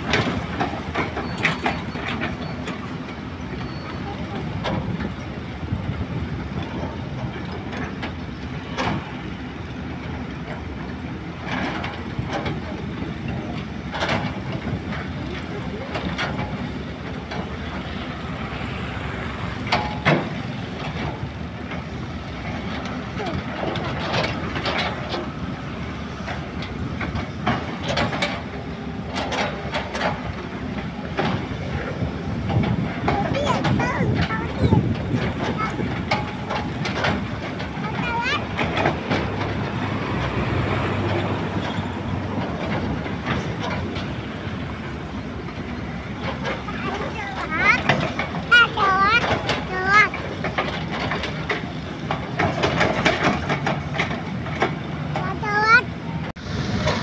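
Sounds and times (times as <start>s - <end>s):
excavator diesel engines running: 0.0s - 57.0s
metallic clanks: 19.6s - 55.6s.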